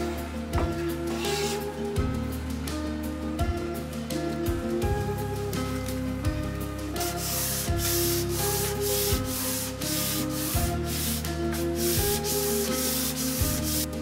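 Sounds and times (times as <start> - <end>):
sanding wood by hand: 1.1 - 1.7, 7.0 - 13.9.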